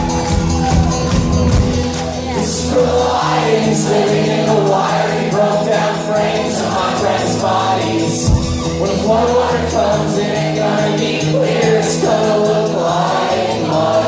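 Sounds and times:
crowd singing along: 0.0s - 14.0s
indie rock band playing: 0.0s - 14.0s.

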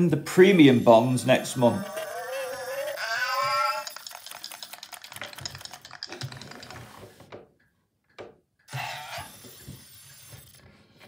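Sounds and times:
toy robot rattling: 1.2s - 7.2s.

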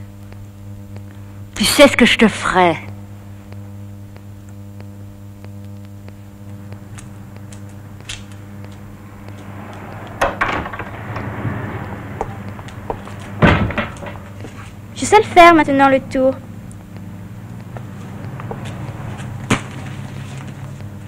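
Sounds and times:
low electrical hum: 0.0s - 21.0s
sharp clicks: 0.1s - 1.6s, 2.8s - 10.2s, 15.6s - 19.7s.

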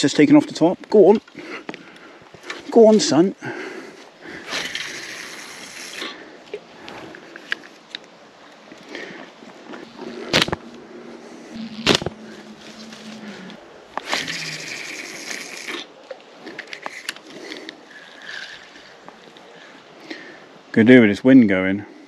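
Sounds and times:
fishing reel whirring: 14.0s - 15.8s, 17.9s - 19.0s.

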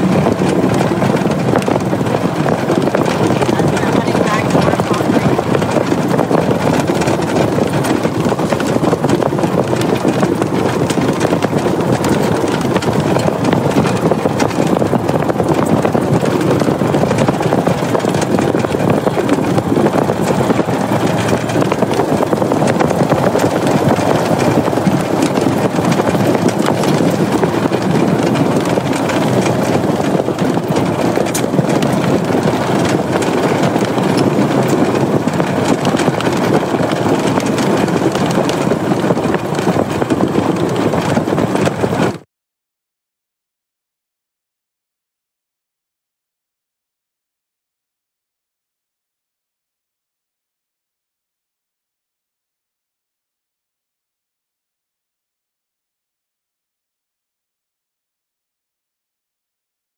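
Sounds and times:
rattling and clatter: 0.0s - 42.2s
vehicle driving on gravel: 0.0s - 42.2s.

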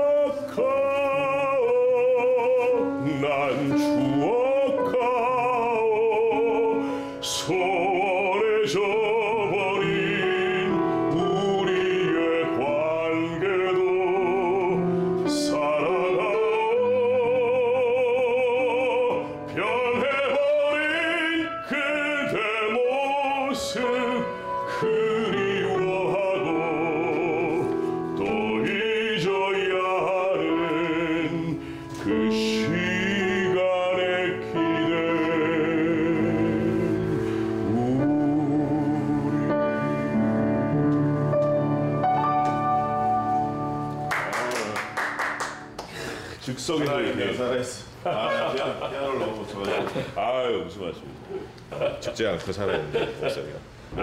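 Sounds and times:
man singing opera: 0.0s - 40.7s
piano accompaniment: 0.0s - 50.2s.

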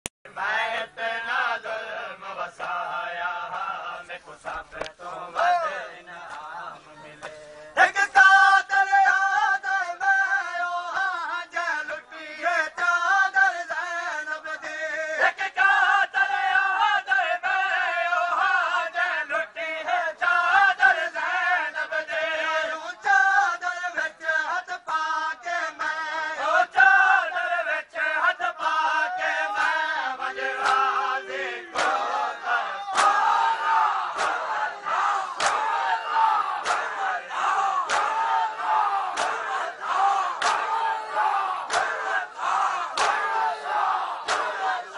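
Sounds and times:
man chanting a lament: 0.5s - 44.9s.

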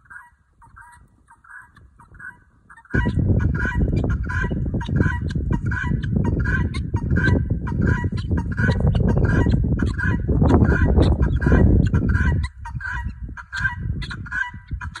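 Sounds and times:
guinea fowl alarm calls: 0.0s - 15.0s
loud low rumble: 2.9s - 12.4s.

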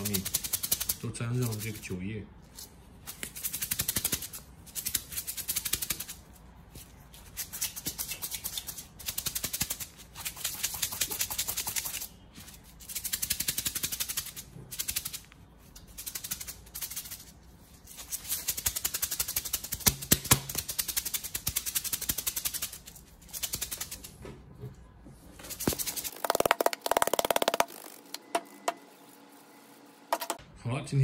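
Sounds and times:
grains rattling in shaken bottle: 0.0s - 1.9s, 25.5s - 28.2s.

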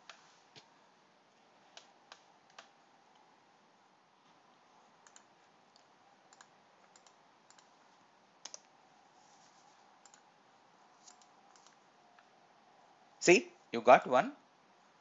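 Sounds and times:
mouse and keyboard clicks: 5.0s - 7.7s, 8.4s - 8.7s, 11.0s - 11.8s.

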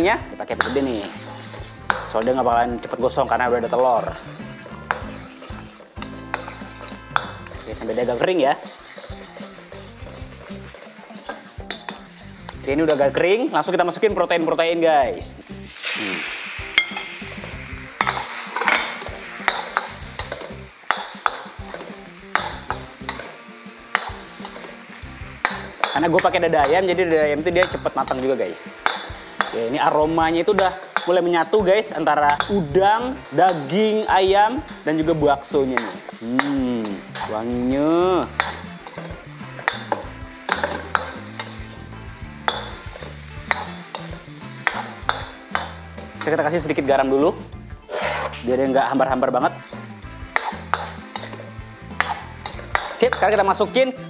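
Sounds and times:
food sizzling in wok: 0.0s - 54.0s
metal ladle scraping wok: 0.6s - 2.1s, 3.6s - 13.2s, 15.4s - 24.8s, 31.9s - 46.9s, 47.8s - 48.6s, 49.6s - 53.4s.

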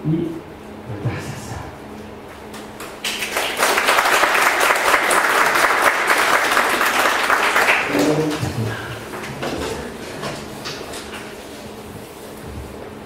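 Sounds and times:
audience applauding: 2.8s - 9.9s.

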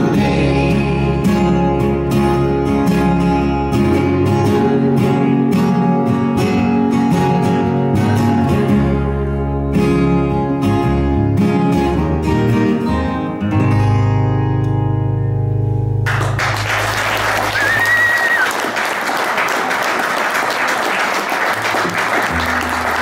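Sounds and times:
guitar and bass chord ringing: 0.0s - 16.5s
audience applause: 16.0s - 23.0s
whistle from crowd: 17.5s - 18.6s.

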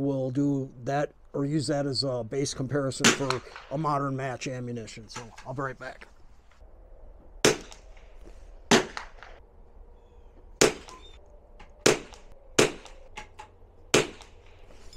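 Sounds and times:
sharp rifle shots: 3.0s - 3.9s, 7.4s - 8.0s, 8.7s - 9.4s, 10.6s - 11.0s, 11.8s - 13.0s, 13.9s - 14.4s.

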